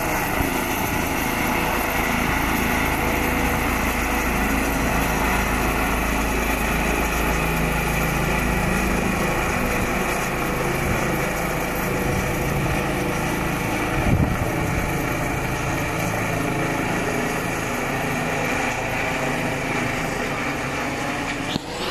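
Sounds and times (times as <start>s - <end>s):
helicopter flying overhead: 0.0s - 21.9s.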